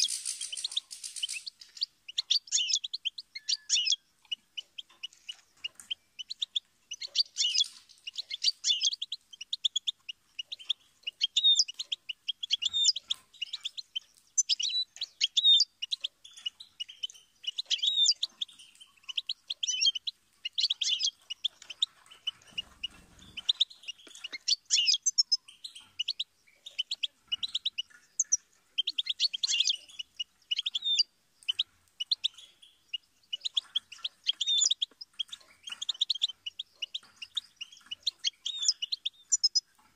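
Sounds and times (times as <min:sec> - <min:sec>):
finch twittering and trilling: 0:00.0 - 0:39.9.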